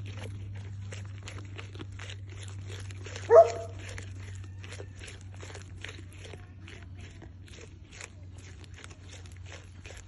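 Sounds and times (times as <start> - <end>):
goat chewing leaves: 0.0 - 10.0.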